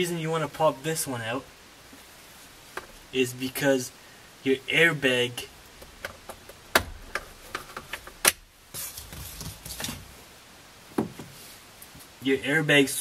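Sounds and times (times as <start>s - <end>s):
scraping and rustling: 5.8s - 10.3s.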